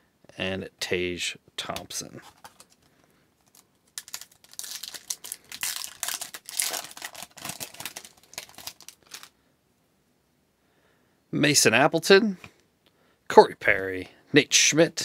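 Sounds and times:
foil wrapper tearing and crinkling: 0:02.2 - 0:02.8, 0:03.4 - 0:09.3.

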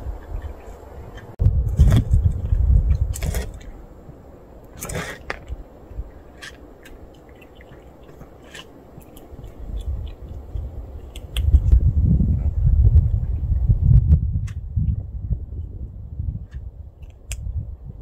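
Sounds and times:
loud low rumble: 0:00.0 - 0:04.0
cats crunching dry kibble: 0:06.3 - 0:11.6.

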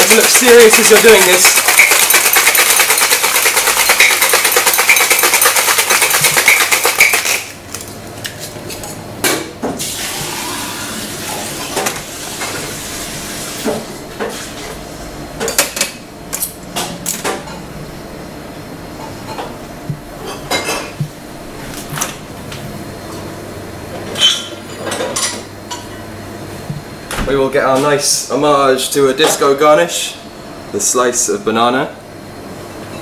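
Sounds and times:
ice rattling in cocktail shaker: 0:00.0 - 0:07.6.

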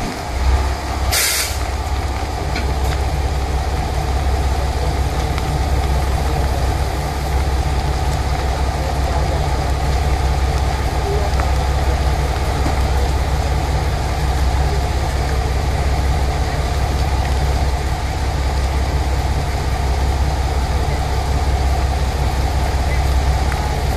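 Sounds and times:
diesel railcar engine idling: 0:00.0 - 0:23.9
hiss of released air: 0:01.1 - 0:01.7.

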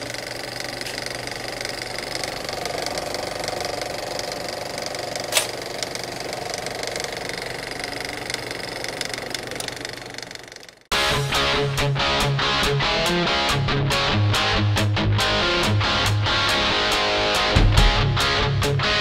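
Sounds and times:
small motor running with rattle: 0:00.0 - 0:10.9
sharp click: 0:05.3 - 0:05.6.

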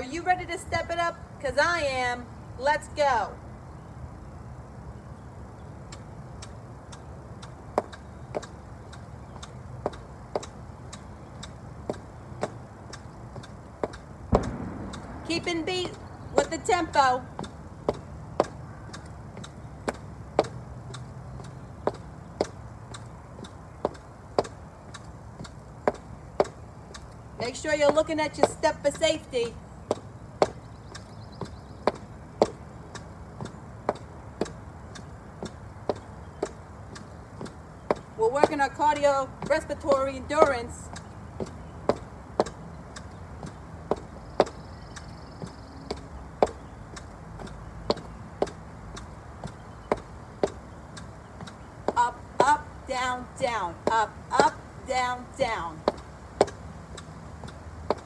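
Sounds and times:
heel clicks on brick step: 0:29.9 - 0:38.6, 0:40.4 - 0:52.5, 0:55.8 - 0:58.0
high heels tapping on brick: 0:31.4 - 0:32.6, 0:45.4 - 0:52.6, 0:55.8 - 0:58.0.

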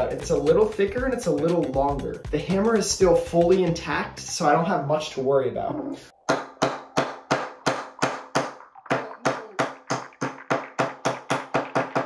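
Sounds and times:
plastic hammer striking a nail: 0:09.6 - 0:12.0.

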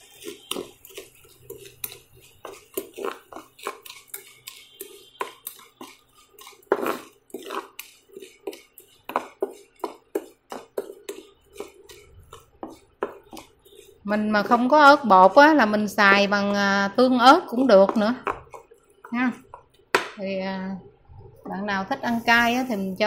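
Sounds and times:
wooden spatula scraping pan: 0:00.0 - 0:16.7, 0:21.5 - 0:23.0.

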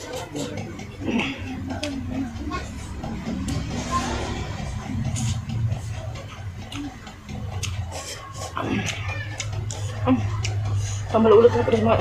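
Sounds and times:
steady low hum: 0:00.0 - 0:12.0
chewing and lip smacking: 0:06.2 - 0:10.8.

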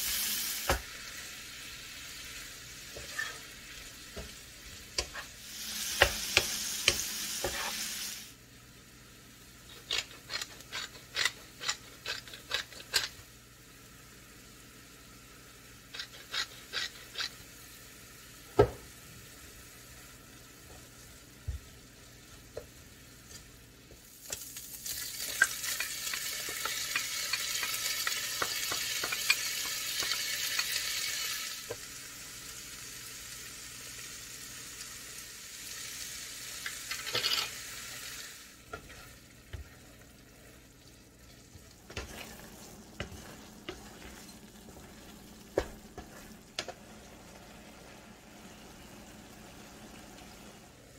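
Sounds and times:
meat sizzling in a frying pan: 0:00.0 - 0:50.6
wooden spatula scraping pan: 0:02.9 - 0:03.5, 0:06.0 - 0:07.9, 0:15.9 - 0:17.4, 0:38.7 - 0:39.9, 0:41.5 - 0:46.9.

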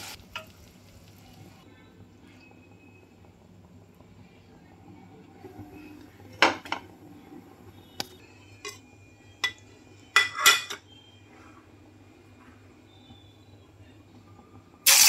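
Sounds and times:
metal cookware clanking: 0:09.4 - 0:10.9.

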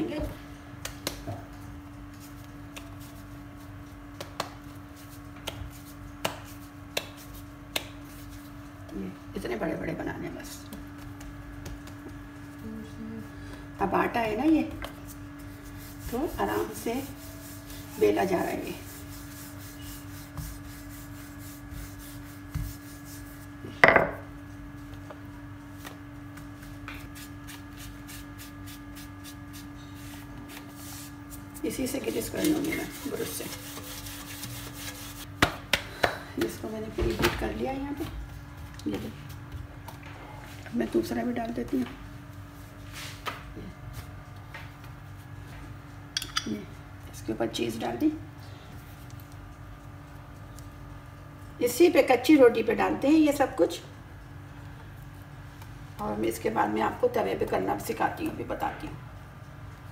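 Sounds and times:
hands patting dough: 0:00.2 - 0:12.6, 0:13.4 - 0:40.0.

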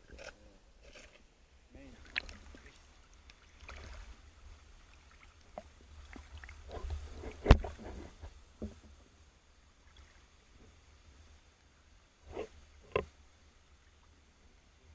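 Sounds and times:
low water rumble: 0:00.0 - 0:14.9
underwater clicks and knocks: 0:02.0 - 0:03.9, 0:05.5 - 0:08.0, 0:08.6 - 0:09.0, 0:12.8 - 0:13.1.

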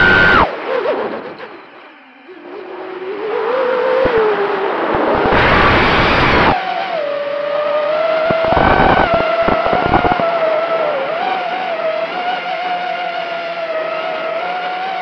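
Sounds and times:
drone motors whining: 0:00.0 - 0:00.5, 0:03.8 - 0:06.6, 0:08.3 - 0:10.9
loud rush of noise: 0:00.0 - 0:00.5, 0:04.0 - 0:06.6, 0:08.2 - 0:10.5
crackling bursts: 0:04.0 - 0:06.6, 0:08.2 - 0:10.3.

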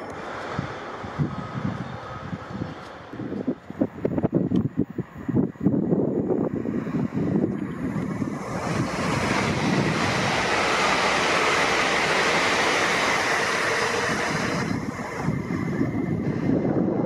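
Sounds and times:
train passing at speed: 0:00.0 - 0:17.0.

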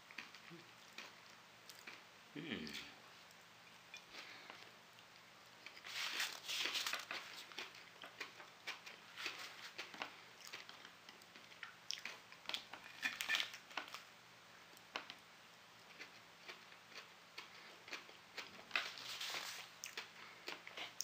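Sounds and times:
soft rustling: 0:05.6 - 0:07.6, 0:18.7 - 0:19.8.

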